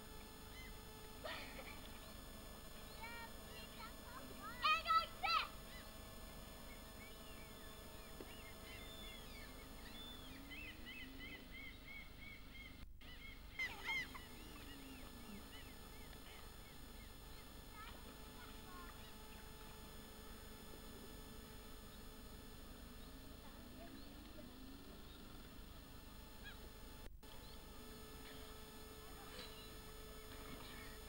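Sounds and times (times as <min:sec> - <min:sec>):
birds honking: 0:01.6 - 0:19.4
camcorder hiss: 0:13.2 - 0:31.0.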